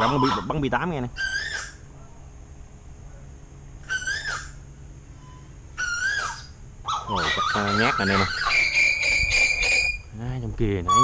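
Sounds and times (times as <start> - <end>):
koel calling: 0.0 - 1.9, 3.8 - 4.6, 5.2 - 10.1, 10.8 - 11.0.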